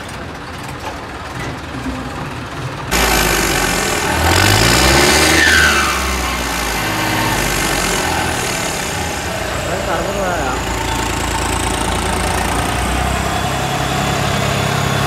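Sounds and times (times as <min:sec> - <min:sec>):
tractor diesel engines passing: 0:00.0 - 0:15.0.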